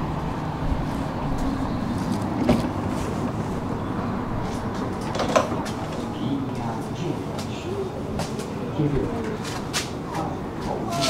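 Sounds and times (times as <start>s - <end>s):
tram humming and hissing: 0.0s - 11.0s
clunk: 5.0s - 5.8s.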